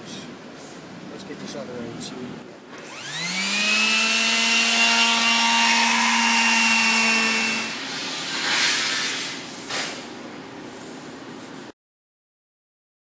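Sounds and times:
power sander whining: 2.8s - 7.8s.

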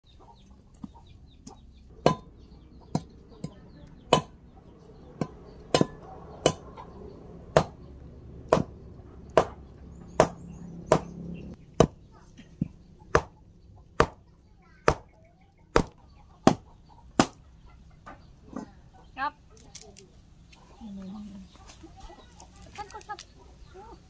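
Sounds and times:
machete chopping wood: 2.0s - 2.3s, 4.1s - 4.4s, 5.2s - 6.7s, 7.5s - 7.8s, 8.5s - 11.2s, 11.8s - 12.0s, 13.1s - 13.4s, 14.0s - 14.2s, 14.8s - 15.1s, 15.7s - 17.4s.

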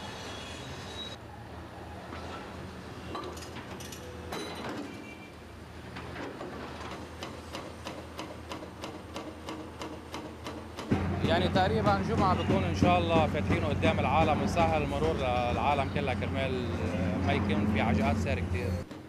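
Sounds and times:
hydraulic breaker hammering concrete: 6.9s - 16.0s
diesel engine hum: 10.9s - 18.9s.

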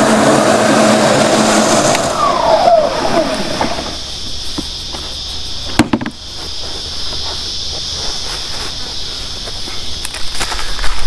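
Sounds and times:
insects droning: 0.0s - 11.0s
plastic bin clattering: 5.7s - 6.2s.

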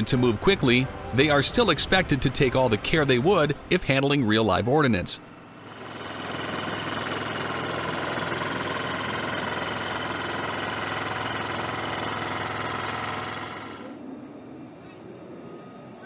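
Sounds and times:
lift truck engine droning: 5.2s - 14.0s.

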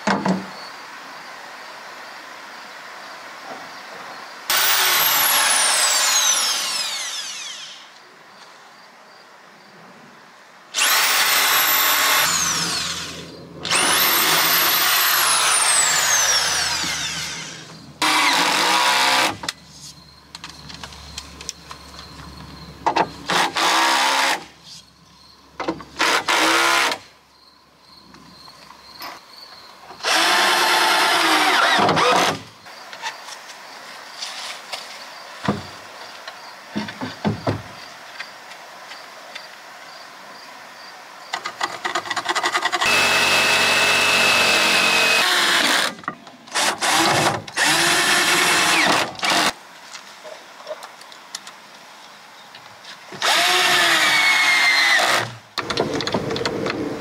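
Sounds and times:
power drill running in bursts: 4.5s - 7.9s, 10.8s - 19.4s, 42.8s - 46.0s, 53.2s - 55.3s
motor whine winding down: 4.5s - 8.0s, 10.8s - 18.6s.

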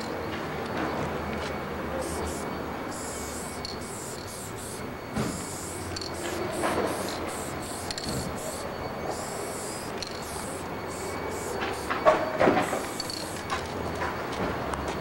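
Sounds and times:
spray-paint can hissing: 2.0s - 13.5s.

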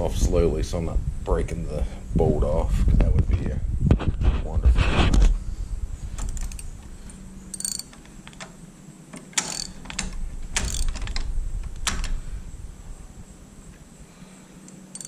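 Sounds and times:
ratchet wrench clicking: 6.2s - 8.5s, 9.4s - 11.2s, 14.6s - 15.0s.

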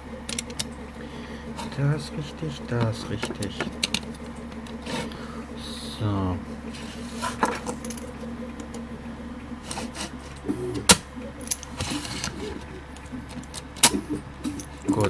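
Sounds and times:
metal parts clicking and tapping: 0.3s - 0.8s, 2.8s - 5.0s, 10.9s - 15.0s.

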